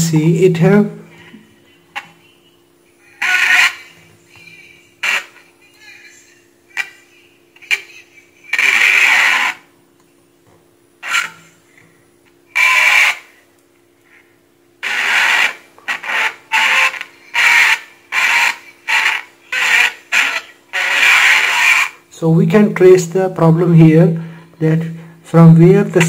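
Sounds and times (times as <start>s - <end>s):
steady low hum: 0.0s - 26.0s
rasping noise bursts from loudspeaker: 3.2s - 9.7s, 11.0s - 11.6s, 12.5s - 13.4s, 14.8s - 23.1s.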